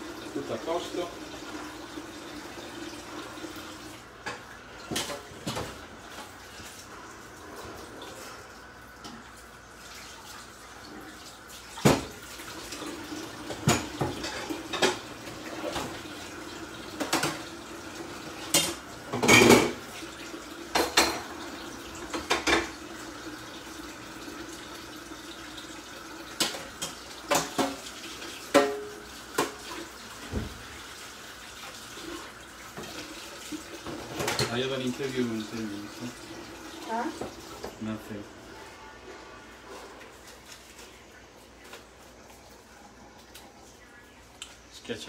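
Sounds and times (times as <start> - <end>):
water running from a tap: 0.0 - 38.5
dishes and cutlery clinking: 28.5 - 29.6, 33.8 - 34.6.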